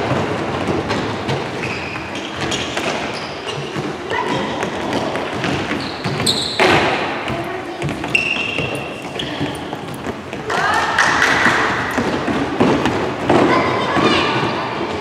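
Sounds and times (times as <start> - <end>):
footsteps thudding on hall floor: 0.0 - 15.0
shoe squeaks: 1.5 - 10.3
children's voices: 3.6 - 5.5, 7.1 - 15.0.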